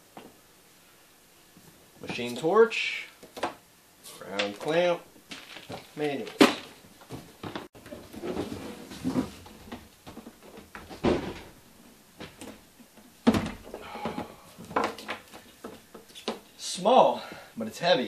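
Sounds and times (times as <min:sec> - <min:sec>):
cord rattling: 0:04.4 - 0:06.7
cardboard scraping and rustling: 0:05.3 - 0:09.9.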